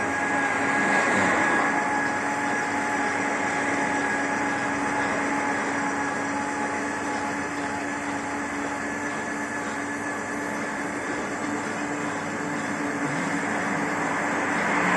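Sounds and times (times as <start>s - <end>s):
lathe machine hum: 0.0s - 14.9s
machine whine: 0.0s - 14.9s.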